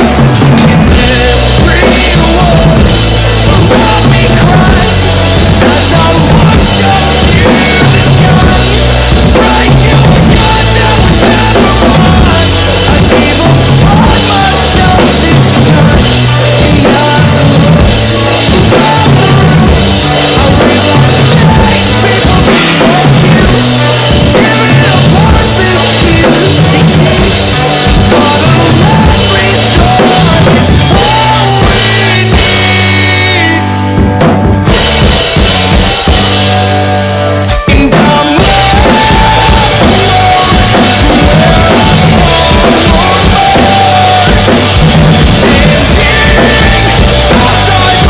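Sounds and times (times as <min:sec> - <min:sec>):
recorded rock song: 0:00.0 - 0:48.0
rock drum beat: 0:00.0 - 0:48.0.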